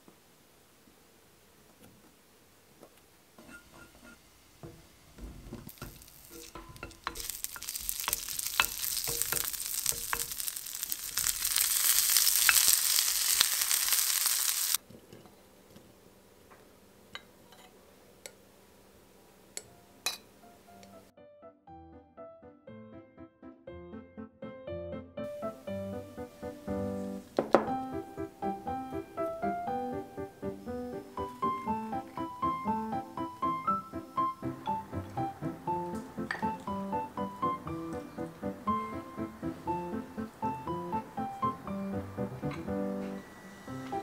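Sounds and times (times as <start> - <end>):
food sizzling in a frying pan: 3.4 - 14.8
utensil clicking against pan: 5.7 - 10.6.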